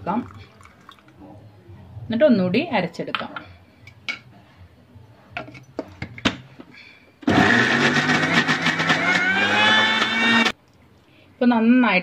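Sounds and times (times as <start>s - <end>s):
electric mixer grinder whining: 7.3s - 10.5s.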